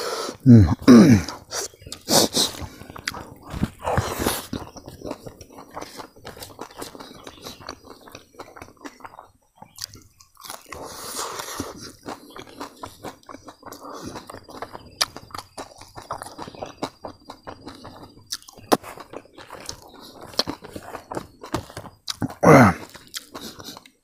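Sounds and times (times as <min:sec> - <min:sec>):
mouth sounds: 0:00.0 - 0:07.7, 0:22.1 - 0:23.9
crunchy chewing: 0:00.0 - 0:24.0.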